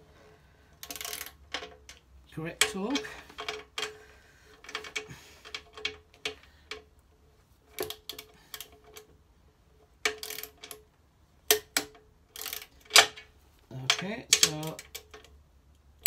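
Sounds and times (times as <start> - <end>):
ratchet wrench clicking: 0.8 - 2.0, 10.1 - 10.8, 11.5 - 13.2.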